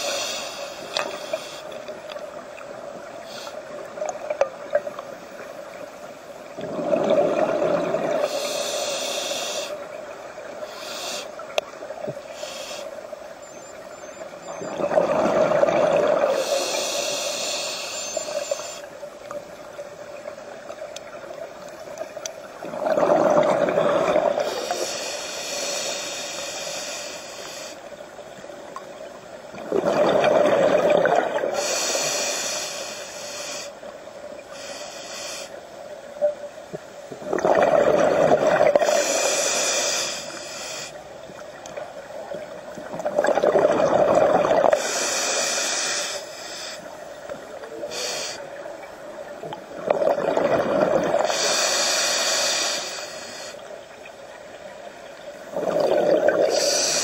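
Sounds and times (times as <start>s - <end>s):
regulator hiss: 0.0s - 4.2s, 8.1s - 13.3s, 16.3s - 20.6s, 24.3s - 28.2s, 31.5s - 36.0s, 38.6s - 41.6s, 44.7s - 49.5s, 51.2s - 53.9s, 56.4s - 57.0s
bubbling exhalations underwater: 6.6s - 8.2s, 14.5s - 16.4s, 22.6s - 24.4s, 29.6s - 31.6s, 37.2s - 39.0s, 42.9s - 44.8s, 49.8s - 51.3s, 55.5s - 56.7s.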